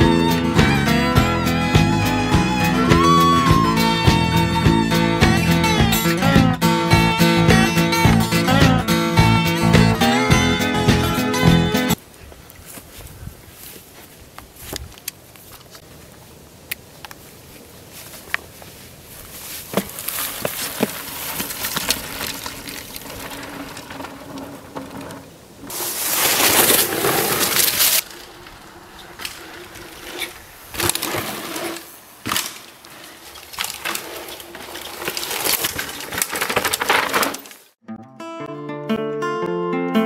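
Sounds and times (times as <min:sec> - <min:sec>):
bike tyres crunching on dirt: 0:12.0 - 0:37.8
tyres sliding through dry leaves: 0:17.2 - 0:37.8
bike clicks and rattles: 0:19.4 - 0:37.7.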